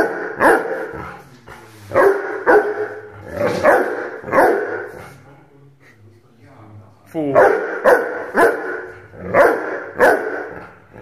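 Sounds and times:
puppy barking: 0.0s - 1.0s, 2.0s - 5.0s, 7.4s - 10.7s.

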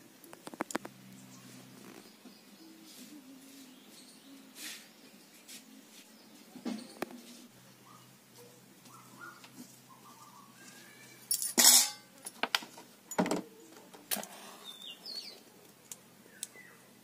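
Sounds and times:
knocks and clinks of utensils: 11.3s - 12.1s
steel pan clattering on ground: 11.4s - 12.1s.

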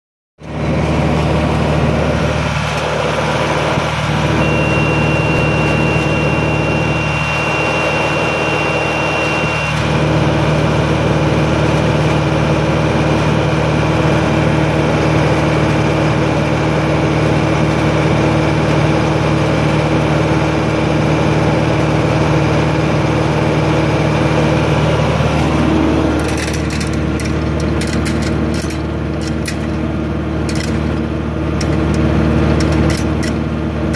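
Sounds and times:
tractor engine running: 0.4s - 33.9s
thin high whistle: 4.3s - 9.9s.

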